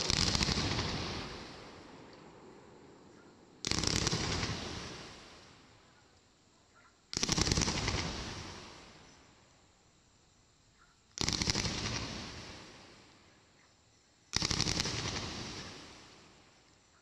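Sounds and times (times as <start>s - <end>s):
fireworks firing rapid volleys: 0.0s - 2.2s, 3.1s - 6.0s, 7.0s - 9.3s, 11.1s - 13.4s, 14.3s - 16.6s.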